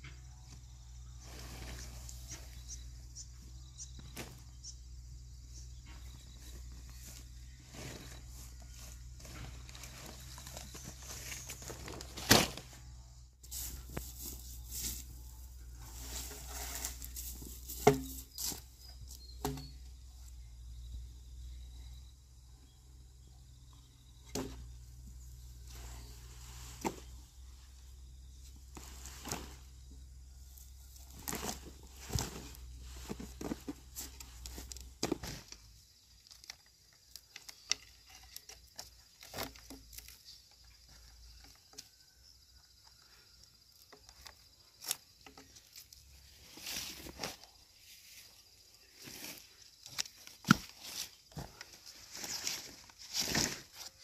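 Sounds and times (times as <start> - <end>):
rustling and crackling: 5.9 - 18.8, 30.6 - 36.7.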